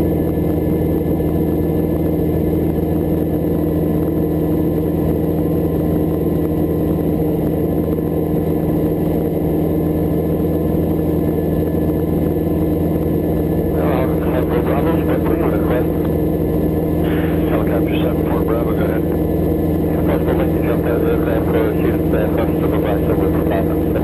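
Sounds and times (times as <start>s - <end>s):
helicopter engine and rotors drone: 0.0s - 24.0s.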